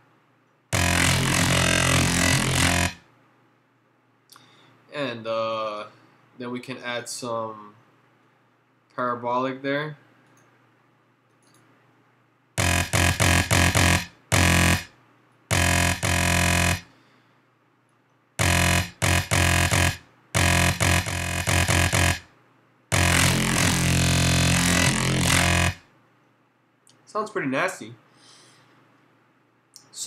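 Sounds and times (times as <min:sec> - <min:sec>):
distorted synth bass notes: 0:00.8 - 0:03.0, 0:12.6 - 0:14.9, 0:15.5 - 0:16.9, 0:18.4 - 0:22.2, 0:22.9 - 0:25.8.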